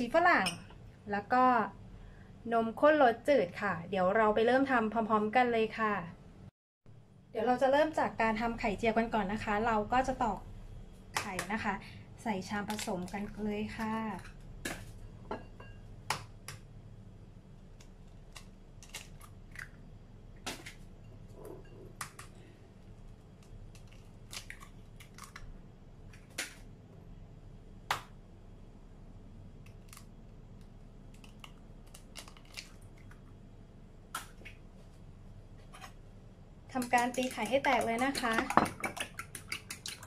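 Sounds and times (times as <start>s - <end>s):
eggshells cracking: 17.6s - 19.8s, 23.1s - 26.6s, 29.5s - 33.3s.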